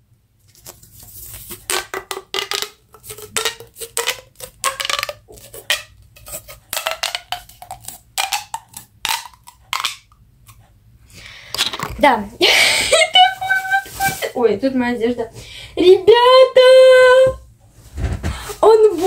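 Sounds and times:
small hard objects clattering: 0.6 - 10.1.

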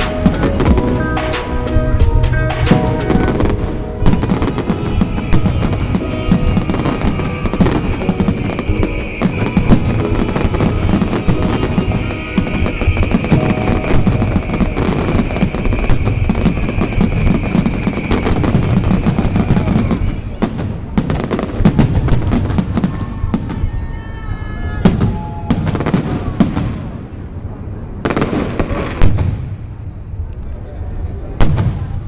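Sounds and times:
fireworks bangs and crackles: 0.0 - 32.0.

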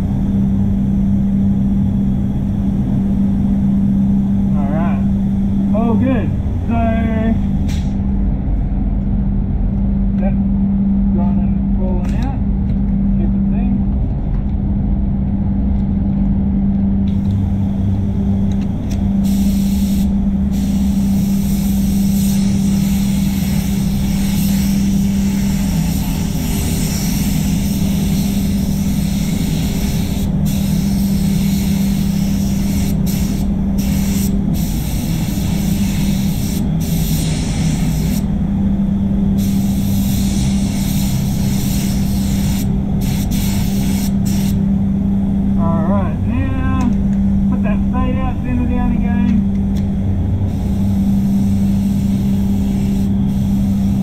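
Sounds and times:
spray booth fans humming: 0.0 - 54.0
paint spray gun hissing: 19.2 - 38.3, 39.4 - 44.6, 50.5 - 54.0.

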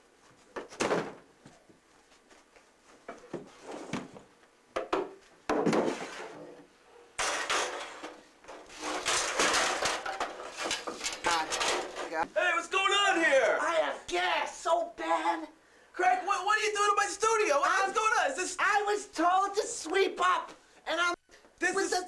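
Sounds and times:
rough scraping and rustling: 8.6 - 12.2.

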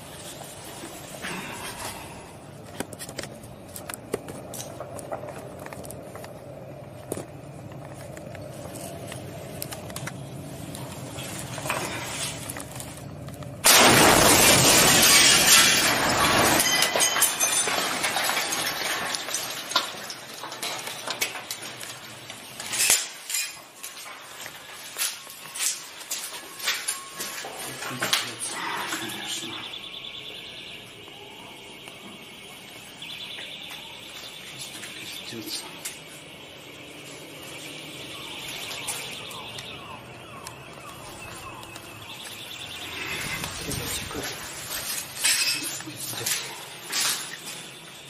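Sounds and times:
breaking glass: 13.6 - 28.4, 42.8 - 48.0.

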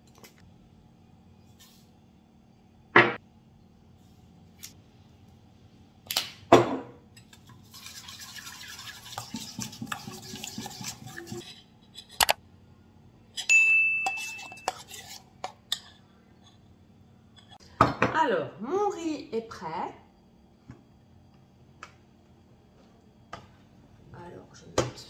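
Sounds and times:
wet scraping and stirring: 7.1 - 12.4, 14.1 - 16.7
spoon clinking metal bowl: 13.4 - 15.0.

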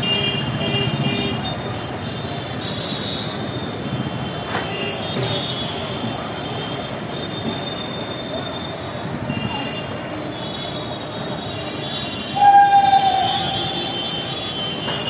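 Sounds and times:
wheels squealing: 10.3 - 15.0
train horn: 12.2 - 14.6
train rumbling: 12.3 - 15.0.

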